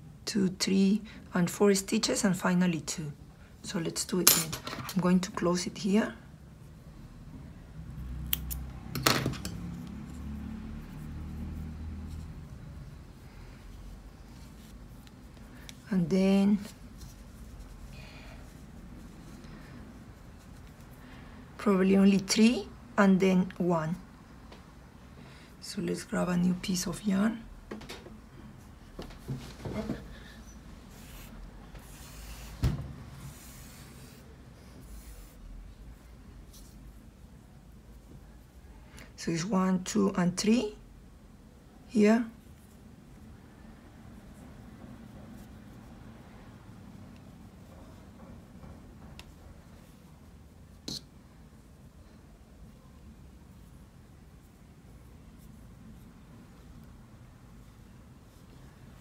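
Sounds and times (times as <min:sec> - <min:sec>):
metal scissors clicking: 0:08.3 - 0:08.7
hands rustling yarn: 0:09.5 - 0:21.6, 0:28.4 - 0:38.7, 0:44.0 - 0:59.0.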